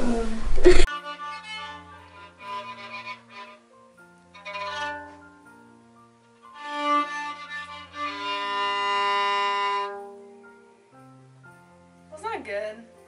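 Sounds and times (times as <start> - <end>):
bowed violin: 0.0 - 10.5.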